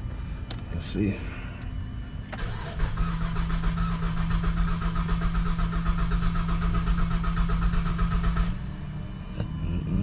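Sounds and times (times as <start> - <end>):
car starter cranking: 2.4 - 8.6.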